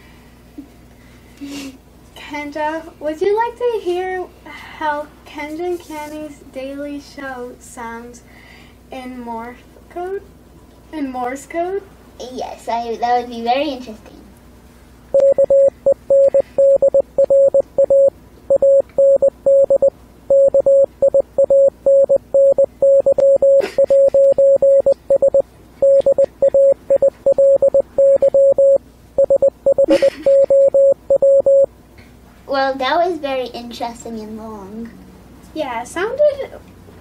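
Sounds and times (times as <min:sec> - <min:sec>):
morse code beeps: 0:15.2 - 0:31.7.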